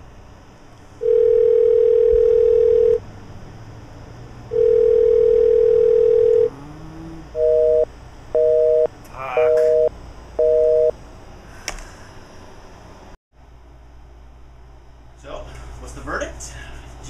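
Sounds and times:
telephone ringback tone: 1.0 - 3.0, 4.5 - 6.5, 7.4 - 8.9, 9.6 - 10.9
busy signal beeps: 9.5 - 10.9.

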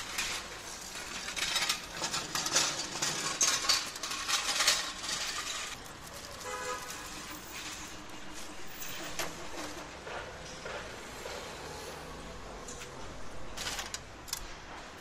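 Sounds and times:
small metal parts clinking: 0.0 - 7.9.

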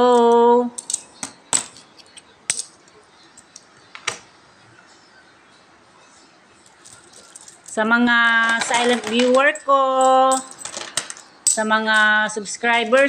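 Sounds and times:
metal coins clinking: 0.8 - 2.8, 6.7 - 13.0.

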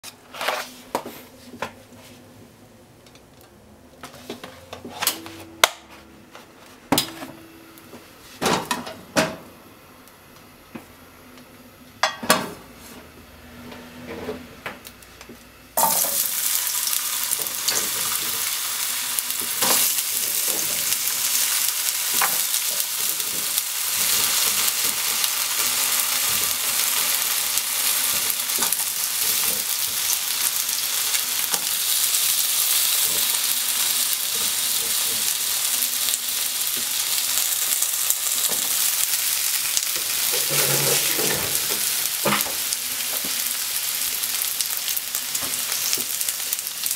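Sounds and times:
potatoes sizzling in hot oil: 15.8 - 46.9.

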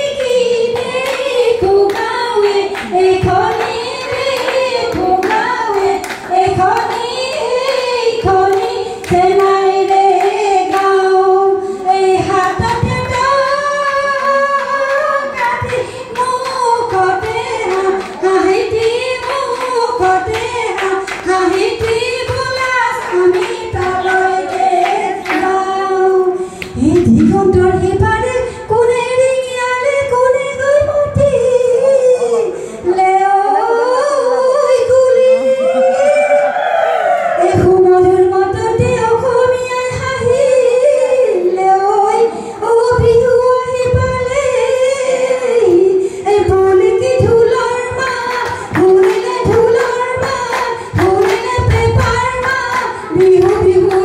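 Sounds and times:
women singing: 0.0 - 36.5, 37.4 - 54.0
rhythmic percussion beats: 26.6 - 28.4, 46.5 - 54.0.

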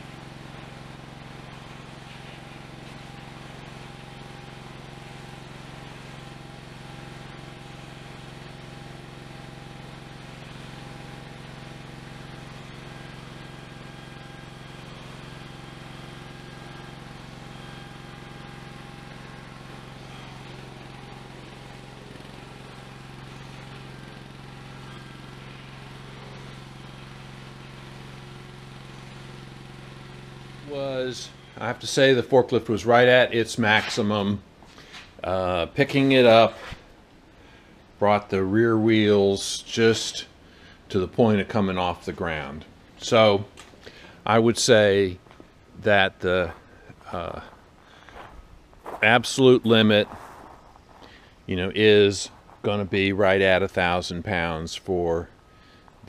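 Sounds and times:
forklift motor humming: 0.0 - 38.0, 39.2 - 56.0.

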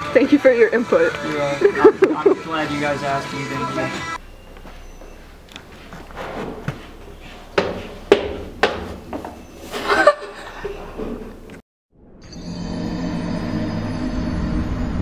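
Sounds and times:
person laughing: 1.6 - 2.5, 9.8 - 10.7
sharp knocks: 7.6 - 9.3
low drone: 12.0 - 15.0.

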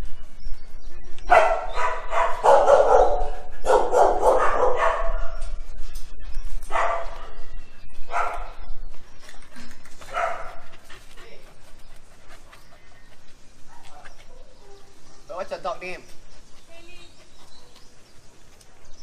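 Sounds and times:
dogs barking: 1.3 - 5.6, 6.6 - 8.7, 10.0 - 11.0, 13.6 - 15.8, 17.2 - 18.1.

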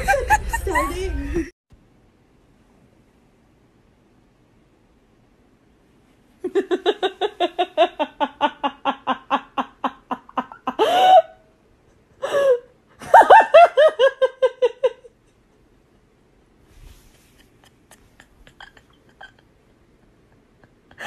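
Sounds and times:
person laughing hard: 0.0 - 1.5, 6.4 - 11.4, 17.2 - 21.0.

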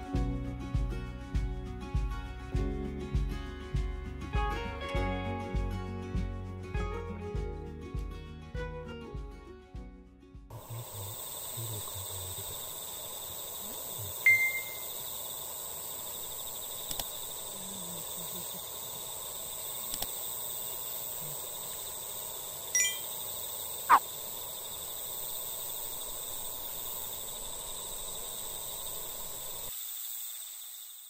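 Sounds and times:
insects chirring: 10.5 - 31.0
short chime: 14.3 - 14.8, 22.8 - 23.1
faint clicks: 16.8 - 17.4, 19.6 - 20.2.

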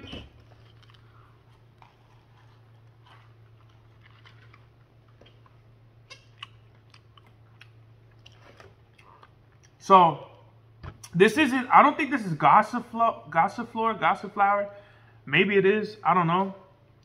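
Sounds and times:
steady low hum: 0.0 - 17.0
person chewing food: 0.3 - 9.8.

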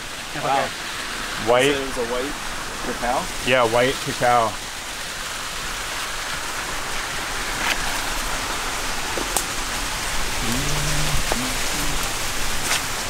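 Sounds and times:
waterfall rushing: 0.0 - 13.0
low voice: 10.4 - 12.2.

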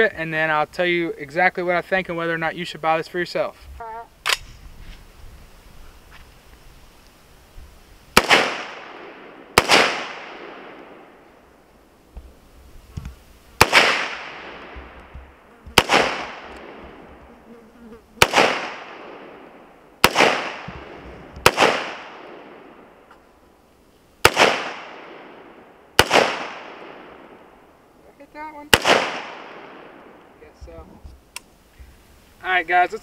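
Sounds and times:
rifle shots with echo: 8.2 - 11.2, 13.6 - 15.1, 15.8 - 17.1, 18.2 - 23.0, 24.2 - 27.6, 28.7 - 30.4.

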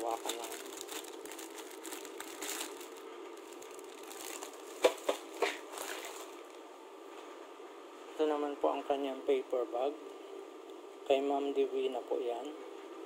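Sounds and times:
plastic bag crinkling: 0.0 - 6.6.

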